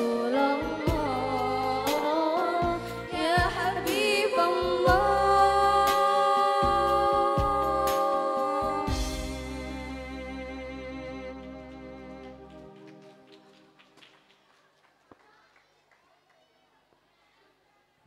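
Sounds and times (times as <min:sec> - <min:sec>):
woman singing into microphone: 0:00.0 - 0:12.5
instrumental backing with bass: 0:00.0 - 0:13.5.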